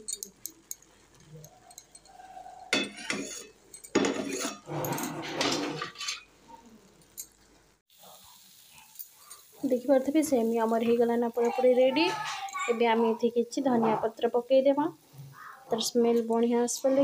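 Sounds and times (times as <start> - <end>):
spatula scraping metal pan: 1.9 - 6.3.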